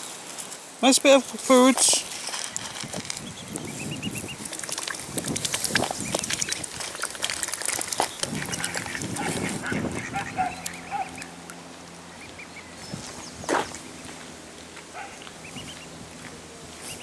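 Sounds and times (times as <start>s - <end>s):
faint high peeping: 2.4s - 4.4s, 15.0s - 15.9s
duck bills dabbling clicks: 2.4s - 11.6s
mallard quacking: 8.3s - 11.4s.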